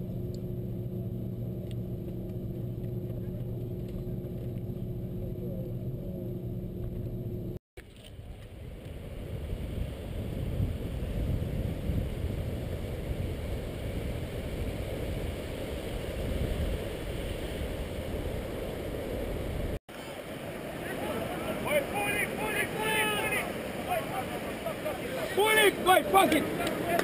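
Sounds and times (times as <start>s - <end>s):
wind noise on microphone: 8.1s - 19.8s
ocean surf: 8.6s - 27.0s.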